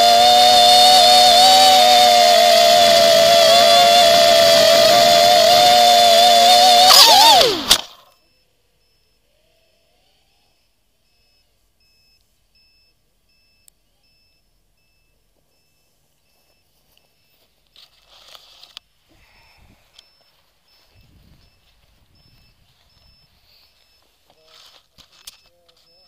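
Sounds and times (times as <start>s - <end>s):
drone motors whining: 0.0s - 11.6s
faint high beeps: 7.8s - 18.0s, 18.8s - 26.0s
faint rustle: 15.3s - 26.0s.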